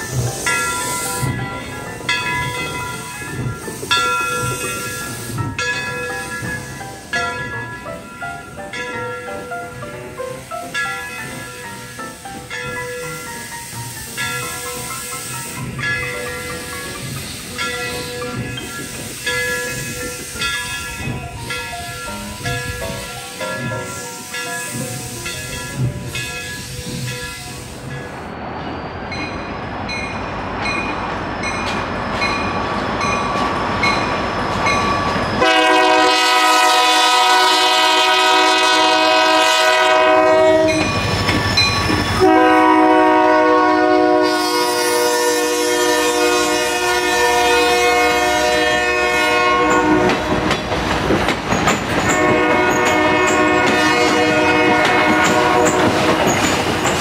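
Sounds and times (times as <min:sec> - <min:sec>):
train passing with wheel clatter: 0:00.0 - 0:57.0
locomotive air horn blasts: 0:35.4 - 0:40.8, 0:42.2 - 0:50.5, 0:52.2 - 0:55.9.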